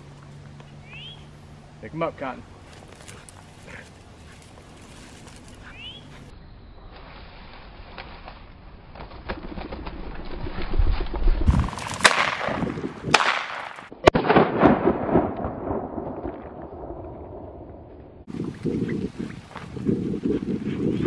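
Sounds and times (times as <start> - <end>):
wind rumble on microphone: 9.4 - 13.2, 14.9 - 21.0
shotgun shots: 11.7 - 16.0.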